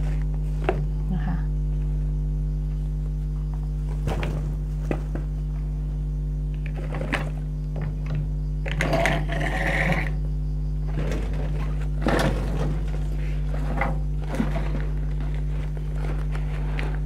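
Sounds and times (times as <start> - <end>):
low electrical hum: 0.0 - 17.0.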